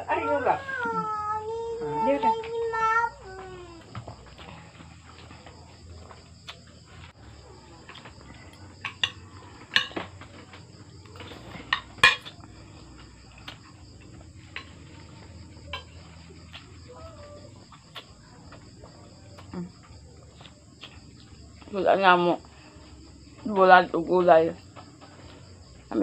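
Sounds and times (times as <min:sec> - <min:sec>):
crickets chirring: 0:00.0 - 0:26.0
plates and spoon clinking: 0:08.8 - 0:10.5, 0:11.2 - 0:12.4.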